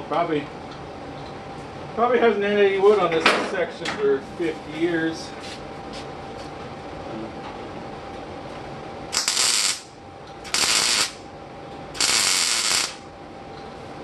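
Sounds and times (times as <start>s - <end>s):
welding arc crackling: 9.1s - 11.2s, 12.0s - 13.1s.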